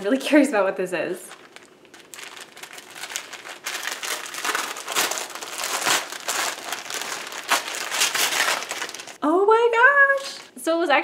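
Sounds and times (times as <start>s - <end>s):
wrapping paper crinkling: 1.2s - 9.2s
paper ripping: 1.4s - 9.2s.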